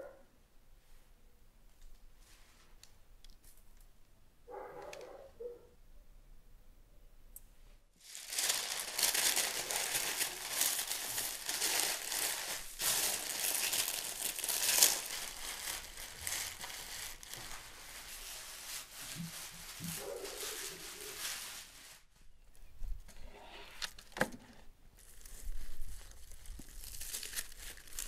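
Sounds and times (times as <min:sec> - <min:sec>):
aluminium foil crinkling: 0:08.0 - 0:22.0, 0:25.0 - 0:28.0.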